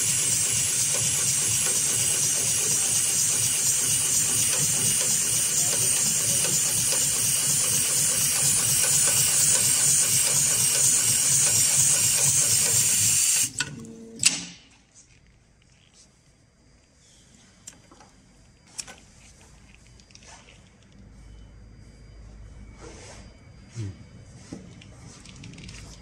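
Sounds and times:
steady machine hiss: 0.0s - 13.6s
sewing machine needle strokes: 0.0s - 13.7s.

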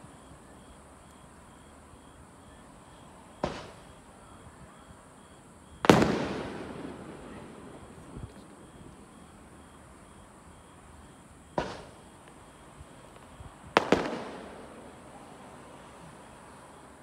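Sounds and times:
firework shells bursting: 11.6s - 12.4s.

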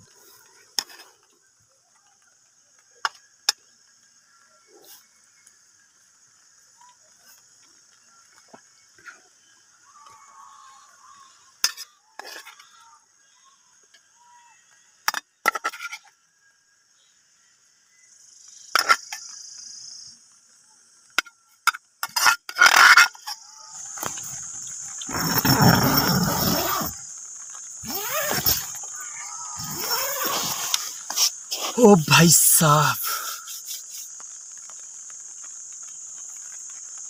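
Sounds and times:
steady hiss: 23.8s - 37.0s
tent fabric rustling: 27.7s - 31.9s.

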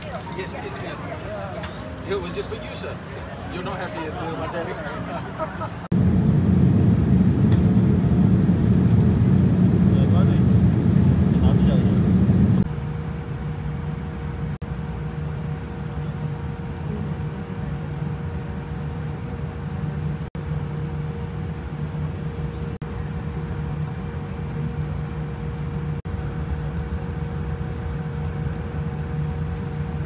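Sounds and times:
airliner cabin rumble: 0.0s - 12.7s.

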